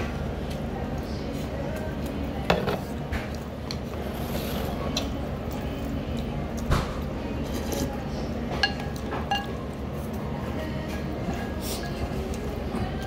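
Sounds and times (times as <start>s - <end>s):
steady low hum: 0.0s - 13.0s
spoon and bowls clinking: 8.6s - 9.7s.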